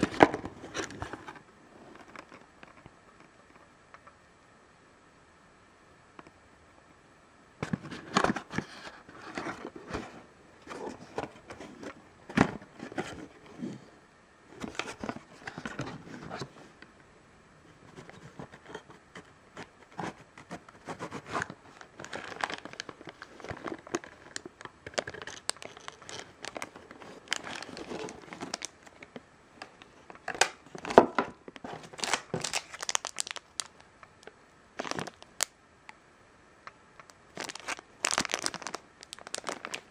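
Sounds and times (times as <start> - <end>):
plastic bags and cardboard crinkling: 0.0 - 2.5, 17.8 - 35.5, 37.1 - 39.9.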